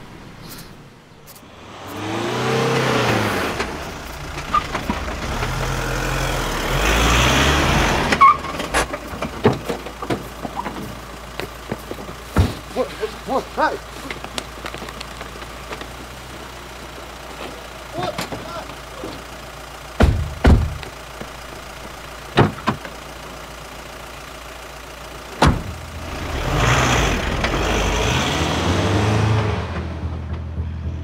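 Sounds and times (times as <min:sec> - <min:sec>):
van engine and tyre noise: 0:00.0 - 0:31.0
man speaking: 0:12.7 - 0:14.0, 0:17.9 - 0:19.2.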